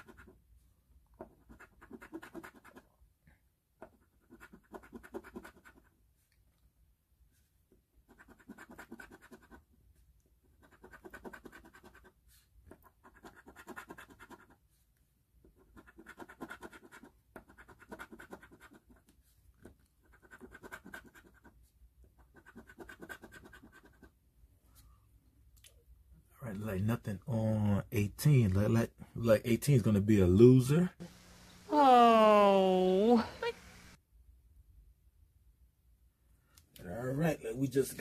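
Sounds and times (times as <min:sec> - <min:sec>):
lottery ticket being scratched: 0:15.6 - 0:19.0.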